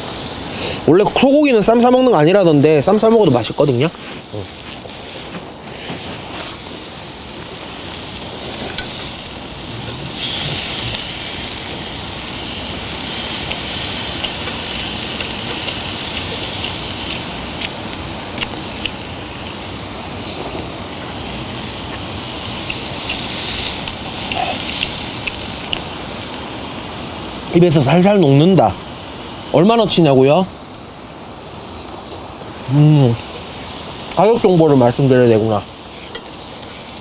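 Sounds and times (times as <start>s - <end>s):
meat sizzling in a pan: 0.0s - 37.0s
small pops and crackles: 13.4s - 19.6s, 21.8s - 26.4s.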